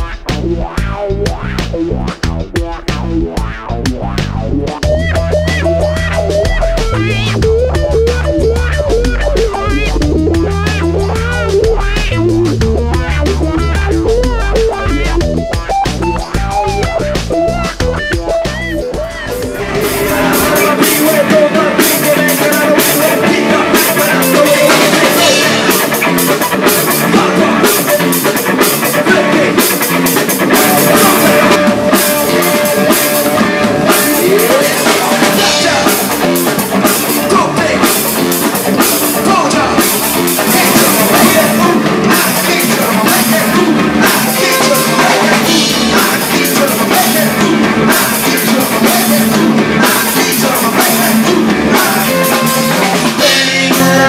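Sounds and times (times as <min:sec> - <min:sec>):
drum kit: 0:00.0 - 0:54.0
electric guitar: 0:00.0 - 0:54.0
man singing: 0:16.2 - 0:54.0.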